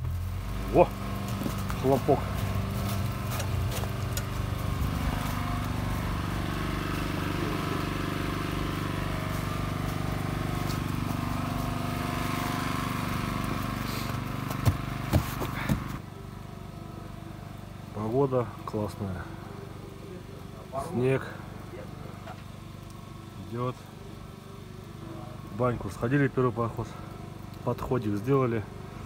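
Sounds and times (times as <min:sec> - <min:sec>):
low engine-like drone: 0:00.0 - 0:29.0.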